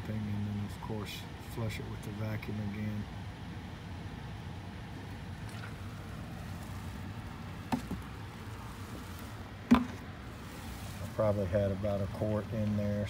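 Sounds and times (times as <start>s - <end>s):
background noise: 0.0s - 13.0s
liquid trickling down a pipe: 5.4s - 11.5s
short knocks: 7.6s - 8.1s, 9.7s - 10.1s.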